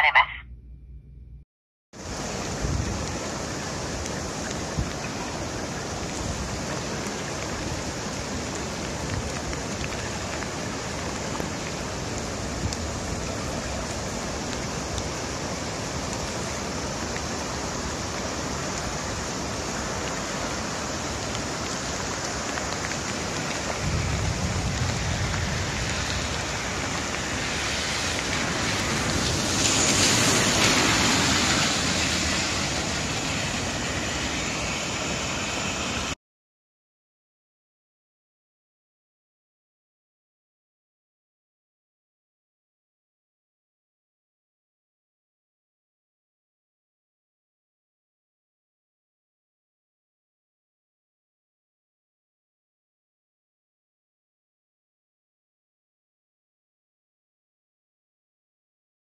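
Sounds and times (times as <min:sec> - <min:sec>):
heavy rain pouring: 0:02.0 - 0:36.2.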